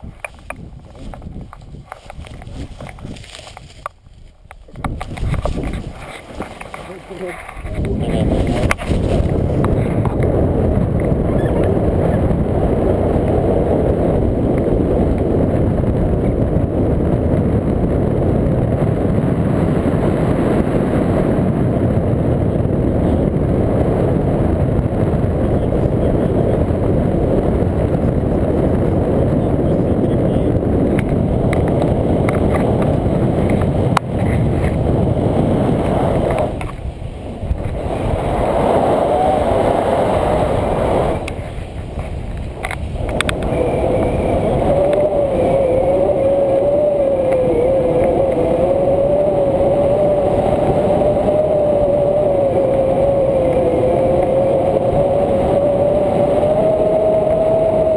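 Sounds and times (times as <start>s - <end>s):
wind roaring over microphone: 0.0s - 57.9s.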